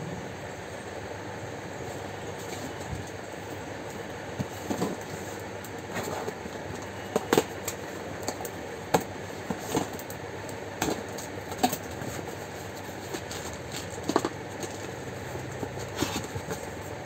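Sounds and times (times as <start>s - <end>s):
cardboard rustling and scraping: 4.4s - 7.8s, 10.8s - 17.0s.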